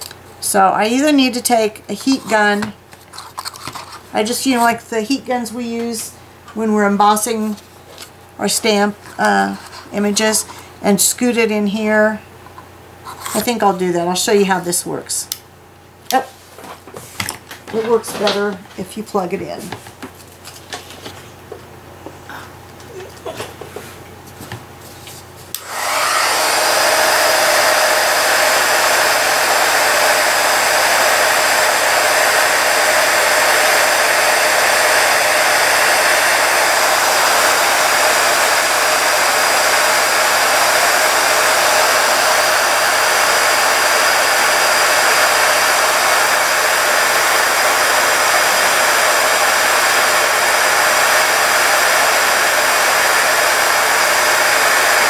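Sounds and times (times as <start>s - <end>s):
heat gun blowing: 25.5s - 55.0s.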